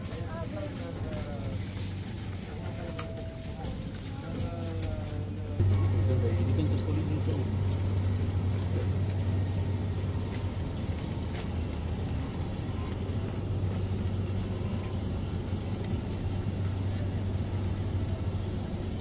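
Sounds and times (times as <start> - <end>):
refrigerated display cases humming: 0.0 - 19.0.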